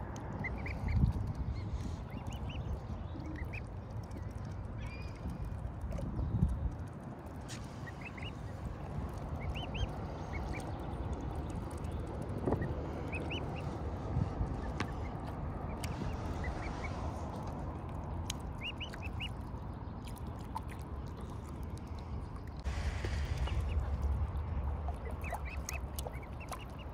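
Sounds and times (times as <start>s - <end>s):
low background rumble: 0.0s - 26.9s
cygnets peeping: 0.3s - 5.4s, 7.7s - 13.8s, 14.5s - 17.5s, 18.1s - 21.2s, 24.9s - 26.9s.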